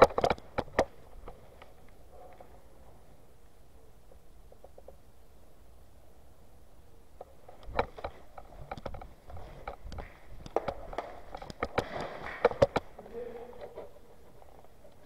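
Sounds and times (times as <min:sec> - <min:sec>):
sharp clicks and knocks: 0:00.0 - 0:02.5, 0:07.2 - 0:13.0.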